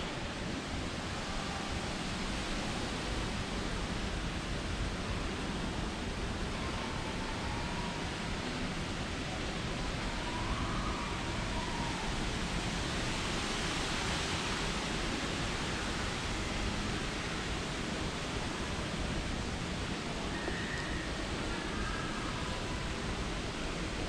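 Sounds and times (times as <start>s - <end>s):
steady rushing noise: 0.0s - 24.0s
faint whistle-like tones: 9.6s - 12.5s, 20.2s - 23.2s.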